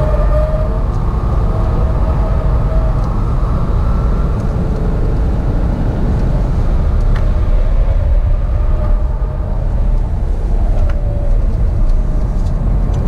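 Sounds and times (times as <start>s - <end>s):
car cabin road rumble: 0.0s - 13.0s.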